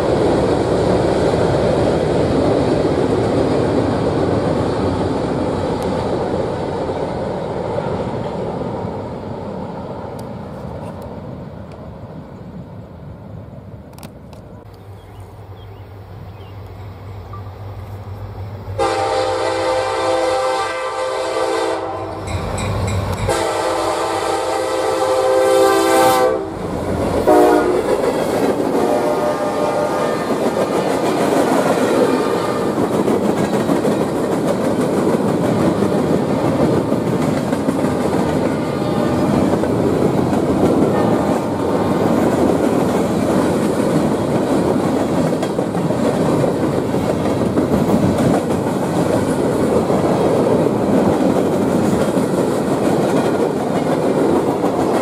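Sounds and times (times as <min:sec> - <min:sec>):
freight train rolling rumble: 0:00.0 - 0:55.0
locomotive air horn blasts: 0:18.8 - 0:22.3, 0:23.2 - 0:28.0, 0:28.7 - 0:30.4
wheels clacking over rail joints: 0:30.3 - 0:55.0.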